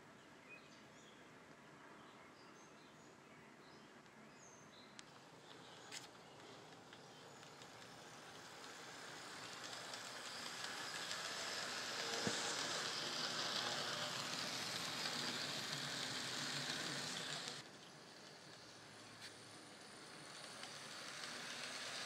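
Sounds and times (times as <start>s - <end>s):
model train running on track: 5.0s - 22.0s.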